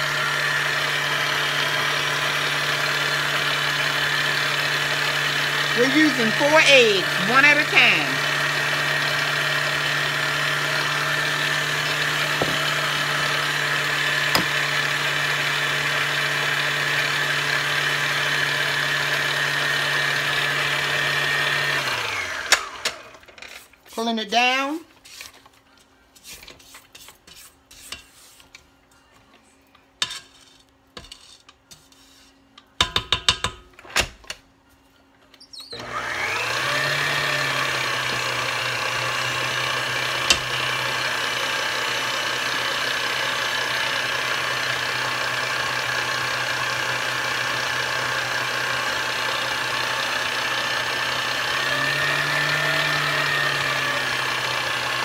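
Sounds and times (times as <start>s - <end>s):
electric mixer running: 0.0s - 23.3s, 35.8s - 55.0s
scraping and clicking in bowl: 26.2s - 28.7s, 30.0s - 33.4s.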